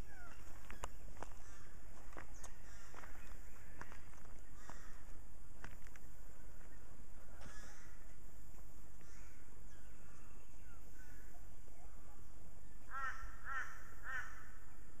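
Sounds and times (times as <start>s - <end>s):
faint bird chirps: 0.0s - 5.1s, 8.9s - 13.5s
crow cawing: 1.2s - 1.8s, 2.6s - 3.3s, 4.5s - 5.1s, 7.3s - 8.0s, 9.0s - 9.5s, 12.9s - 14.6s.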